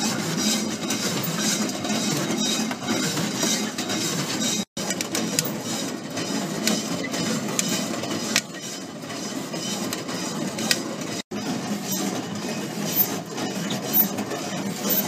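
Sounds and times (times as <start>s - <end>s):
metal trier sliding: 0.0s - 15.0s.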